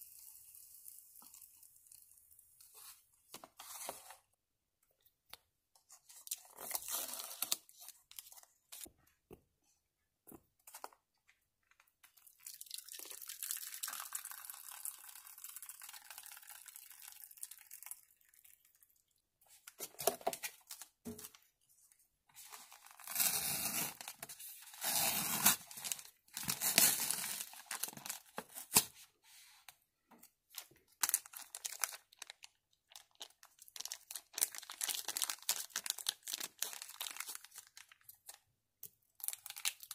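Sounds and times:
plastic packaging crinkling and tearing: 6.0 - 8.9, 22.4 - 29.0, 30.5 - 38.4, 39.2 - 39.9.

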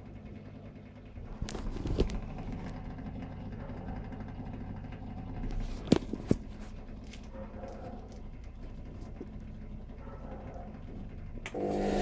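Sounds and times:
washing machine pump humming: 0.0 - 12.0.

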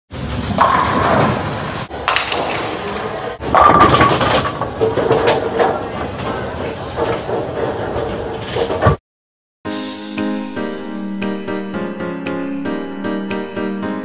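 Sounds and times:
bowling pins crashing: 0.3 - 9.0.

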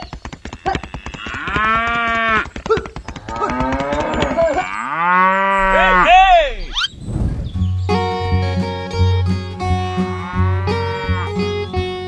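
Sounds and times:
cattle mooing: 0.6 - 2.4, 3.3 - 6.8, 9.5 - 11.8.

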